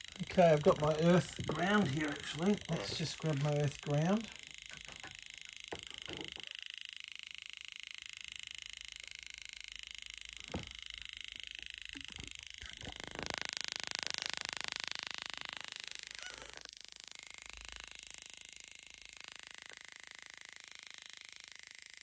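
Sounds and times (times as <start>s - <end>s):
electric field detector ticking: 0.0s - 22.0s.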